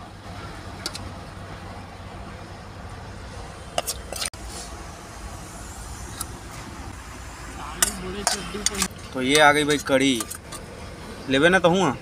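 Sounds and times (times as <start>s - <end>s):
steel spoon clinking on plates: 7.8s - 10.6s.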